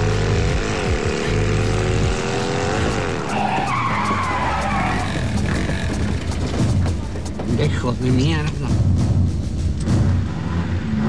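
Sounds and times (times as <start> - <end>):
vehicle engine accelerating: 0.0 - 11.0
tyres skidding and squealing: 0.6 - 8.6.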